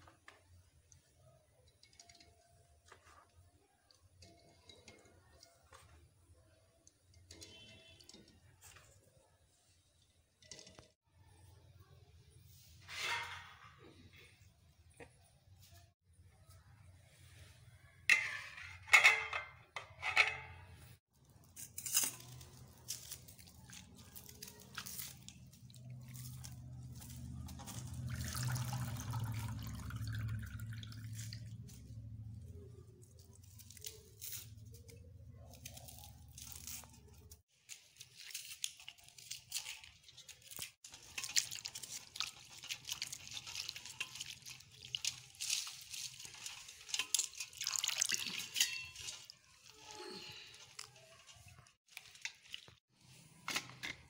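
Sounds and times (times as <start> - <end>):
water splashing and dripping: 27.0 - 31.8, 40.9 - 49.6
steel plate clanking on bowl: 46.5 - 49.3.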